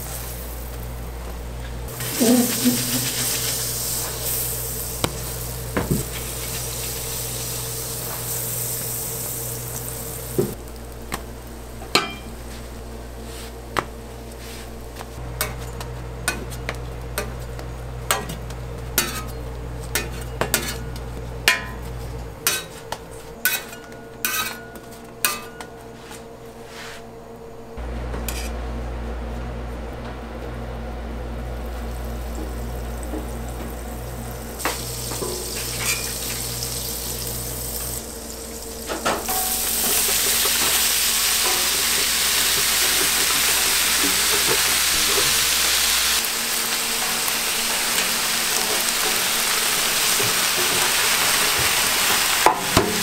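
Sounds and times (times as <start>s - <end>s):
light sizzle on griddle: 1.9s - 13.4s, 31.6s - 52.9s
low hum: 27.4s - 43.4s.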